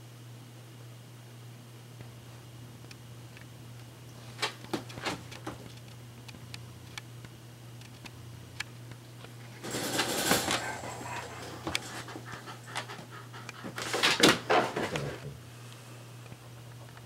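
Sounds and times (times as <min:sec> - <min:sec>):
steady low hum: 0:00.0 - 0:17.0
dog panting: 0:10.4 - 0:14.2.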